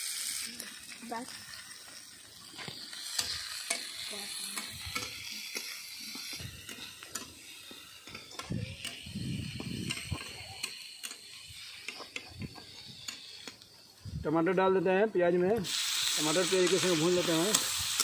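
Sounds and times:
onions sizzling in oil: 0.0 - 18.0.

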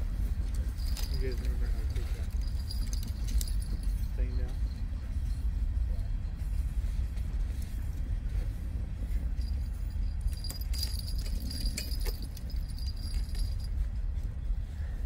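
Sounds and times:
train rumbling past: 0.0 - 15.0
metallic clanking and rattling: 0.4 - 5.4, 9.4 - 13.7.

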